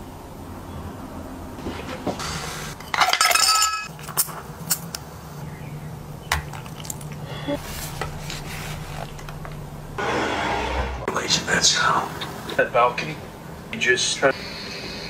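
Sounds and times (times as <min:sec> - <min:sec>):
dishes and glassware clinking: 0:02.8 - 0:03.9.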